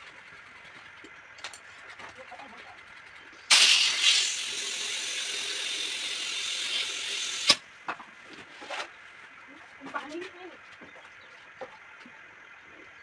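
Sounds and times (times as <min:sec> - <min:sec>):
air hose click: 0:03.5 - 0:04.5, 0:06.6 - 0:07.6
compressed air hissing: 0:03.5 - 0:07.6.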